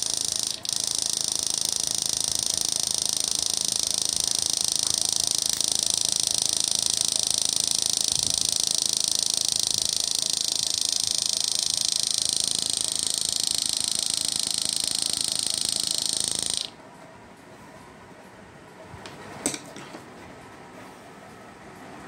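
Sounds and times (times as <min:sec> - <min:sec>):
electric leads arcing: 0:00.0 - 0:16.8
high-pitched electric buzz: 0:00.0 - 0:16.8.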